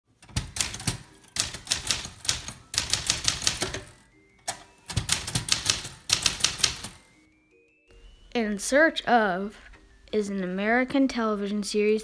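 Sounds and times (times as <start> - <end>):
typewriter keys clacking: 0.2 - 7.0.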